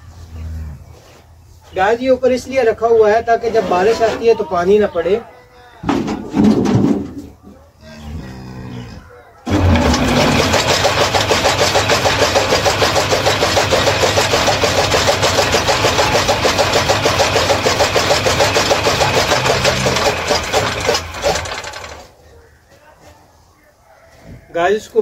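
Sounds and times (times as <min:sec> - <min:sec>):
chaff cutter running with clatter: 0:09.5 - 0:22.1.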